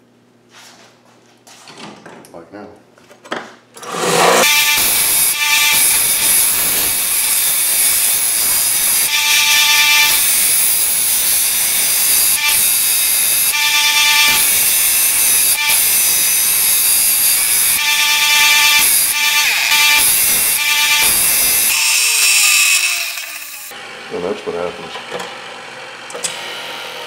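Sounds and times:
belt sander grinding steel: 3.8 - 23.8
high whine: 4.3 - 21.8.

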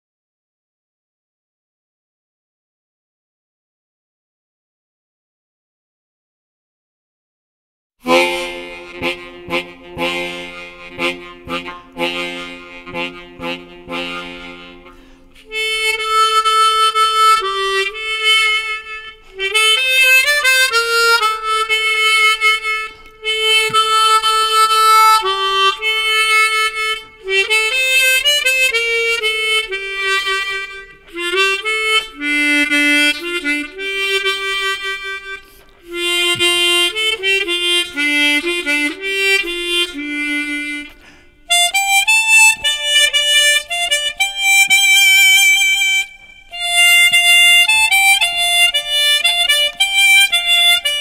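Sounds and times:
harmonica playing: 8.0 - 51.0.

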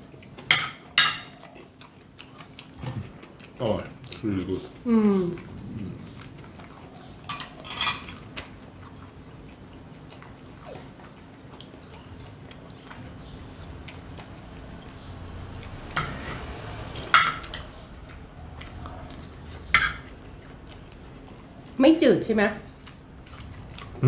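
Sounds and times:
people chewing: 0.0 - 24.0
cutlery clicking against plates: 0.5 - 1.4, 19.7 - 20.1.

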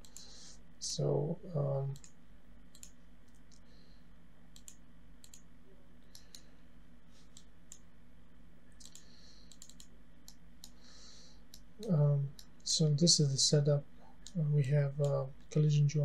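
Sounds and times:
computer mouse clicking: 0.0 - 0.3, 2.0 - 3.7, 4.5 - 5.5, 6.1 - 6.5, 7.2 - 7.9, 8.8 - 10.8
faint steady hum: 0.0 - 16.0.

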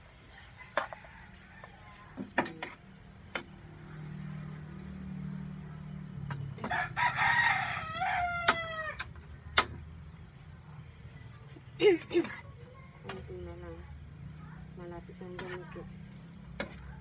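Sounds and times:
rooster crowing: 0.3 - 2.2, 6.6 - 9.1.

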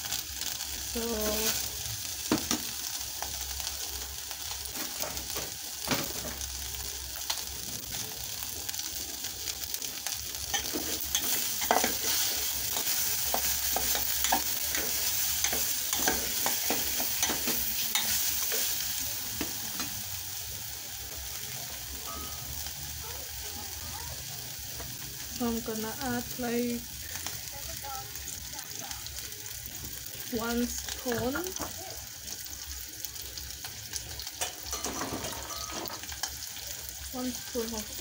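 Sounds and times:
beef sizzling in a pot: 0.0 - 38.0.

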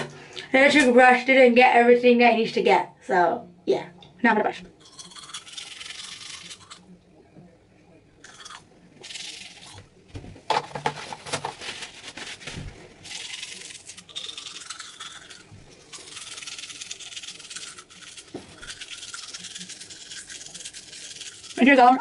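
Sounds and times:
toothbrush scrubbing teeth: 4.8 - 6.9, 8.2 - 9.8, 13.0 - 22.0.

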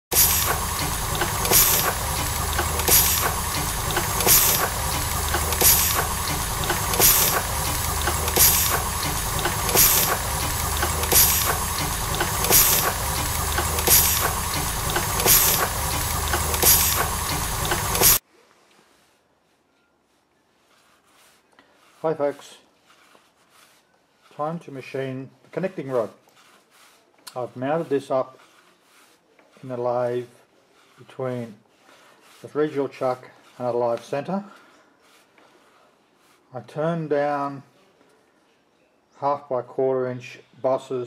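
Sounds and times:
steam hissing: 0.0 - 18.2.

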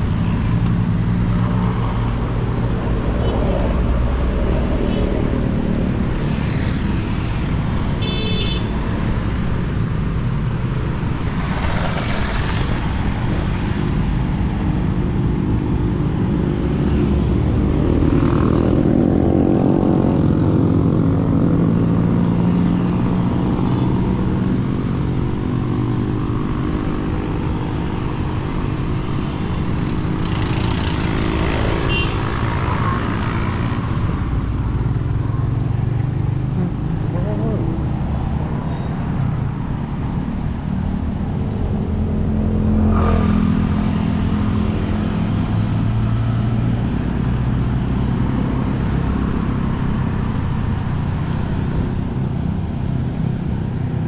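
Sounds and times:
vehicle engine rumbling: 0.0 - 54.0.

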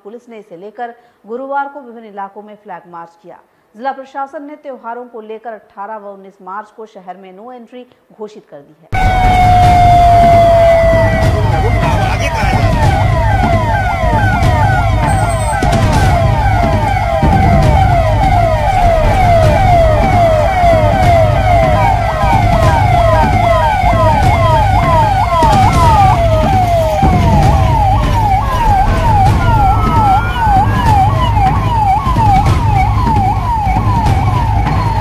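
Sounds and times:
police sirens yelping: 9.0 - 35.0.

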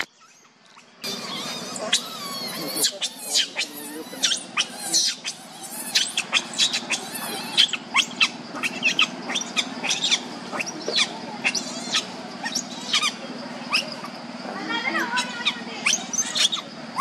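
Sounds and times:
baby monkey squealing: 0.0 - 17.0.

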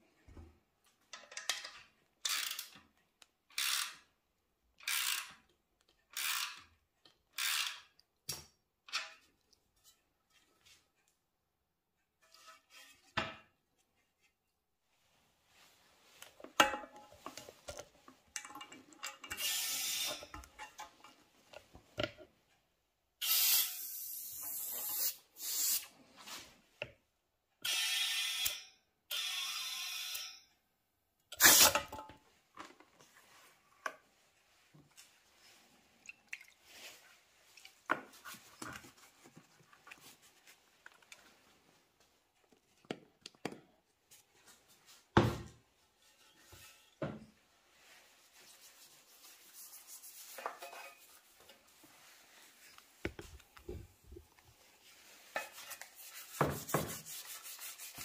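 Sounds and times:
tools and metal parts clicking: 1.1 - 2.9, 4.8 - 6.7, 7.3 - 7.9
compressed air hissing: 24.5 - 25.8.

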